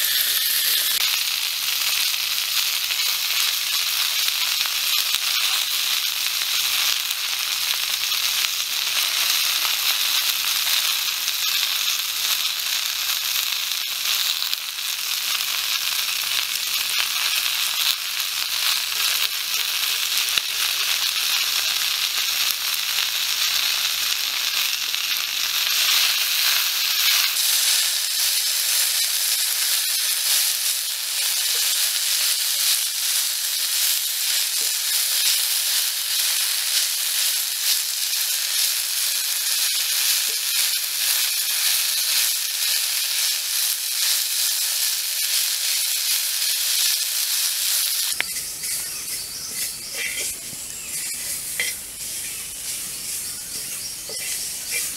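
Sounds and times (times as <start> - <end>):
greens sizzling in a wok: 0.0 - 54.9
stick stirring in wok: 25.7 - 54.9.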